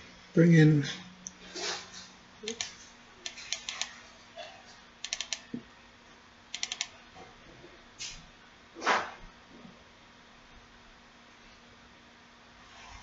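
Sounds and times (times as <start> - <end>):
faint steady hum: 0.0 - 13.0
keyboard typing: 2.4 - 4.0, 5.0 - 5.6, 6.5 - 6.9
mouse clicks: 2.5 - 3.9, 5.0 - 5.4, 6.5 - 6.9.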